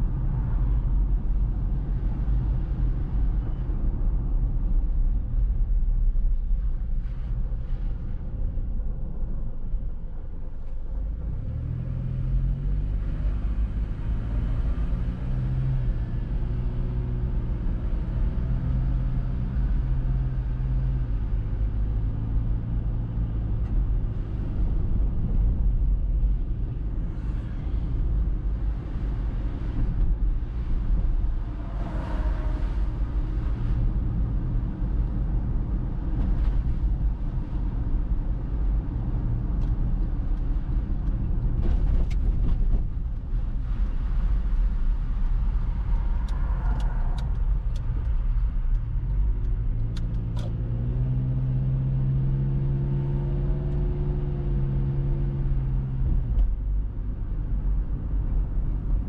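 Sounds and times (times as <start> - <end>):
car engine and road rumble: 0.0 - 59.0
traffic passing: 24.1 - 59.0.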